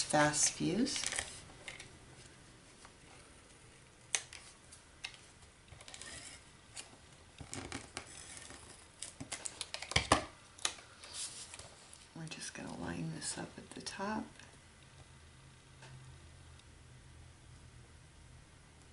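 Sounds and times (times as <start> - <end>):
applicator gun scraping paper: 5.8 - 6.4.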